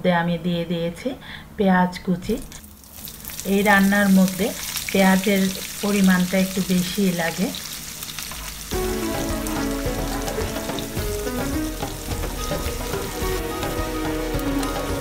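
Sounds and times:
onions sizzling in hot oil: 2.6s - 15.0s
background music with stepping melody: 8.7s - 15.0s.

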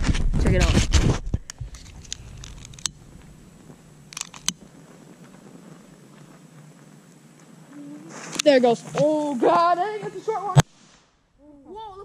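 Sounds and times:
camera set down on dirt: 0.0s - 3.3s, 4.1s - 5.4s.

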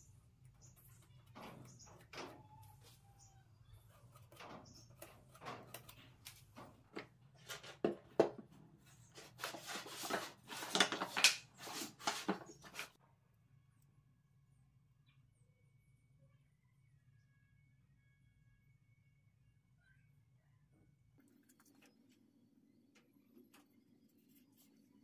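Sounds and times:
wooden parts knocking and scraping: 4.1s - 8.6s.

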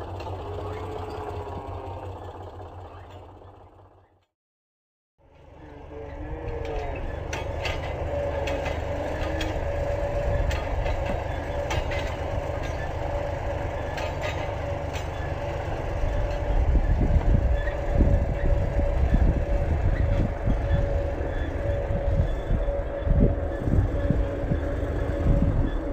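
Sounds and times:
constant whine: 0.0s - 4.3s, 5.2s - 25.9s
tractor engine running: 0.0s - 4.3s, 5.2s - 25.9s
low rumble: 15.4s - 25.9s.

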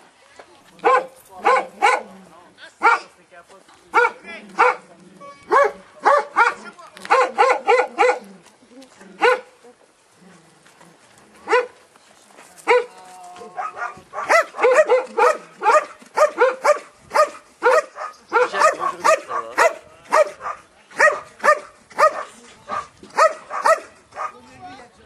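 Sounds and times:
dog barking: 0.8s - 2.1s, 2.8s - 3.1s, 4.0s - 4.8s, 5.5s - 8.3s, 9.2s - 9.5s, 11.5s - 11.8s, 12.7s - 12.9s, 13.6s - 24.4s.

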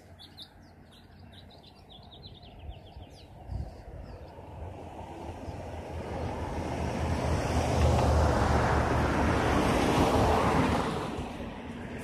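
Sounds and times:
car passing by: 4.3s - 12.0s.

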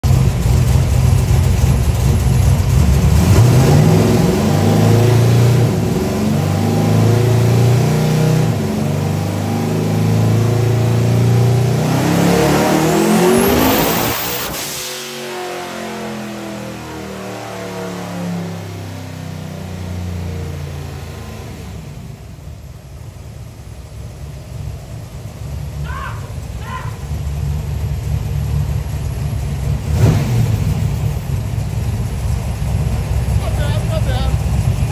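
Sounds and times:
car engine idling: 0.0s - 3.6s, 19.5s - 34.9s
car engine revving: 0.0s - 22.7s, 24.5s - 34.9s.

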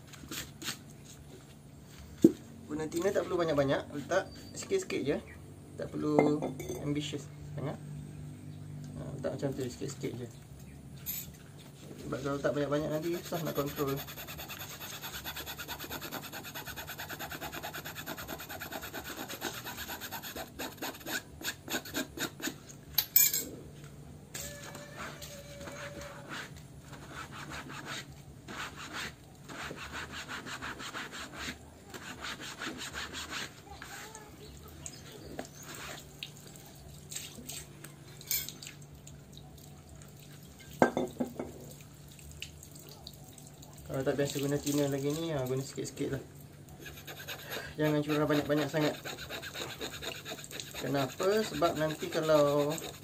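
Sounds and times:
faint dripping: 41.4s - 45.2s.

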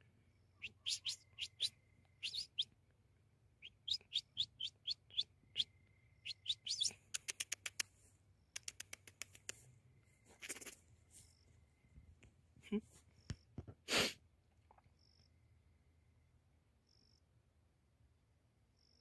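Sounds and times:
bird chirping: 0.3s - 2.8s, 3.5s - 7.8s.

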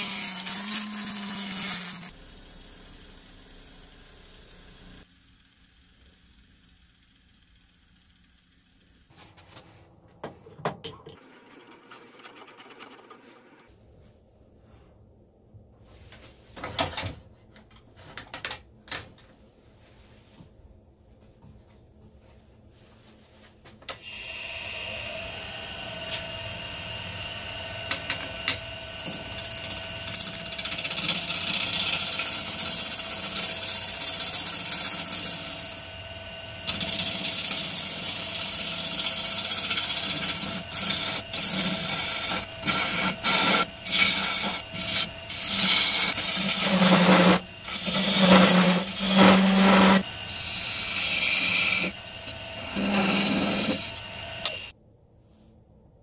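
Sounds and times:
lathe motor whining: 24.0s - 54.7s
gouge cutting wood: 37.0s - 54.7s.

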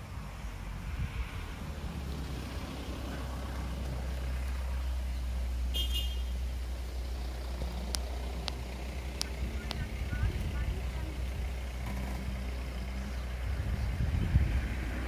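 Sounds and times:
vehicle engine idling: 0.0s - 15.0s
sharp clicks: 7.8s - 9.9s.

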